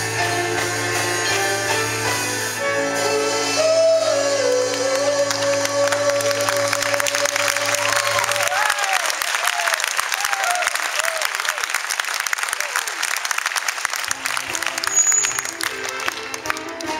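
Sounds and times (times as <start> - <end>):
man singing long note: 2.9 - 8.3
whoops: 3.6 - 11.7, 12.4 - 13.0
audience applauding: 4.4 - 16.9.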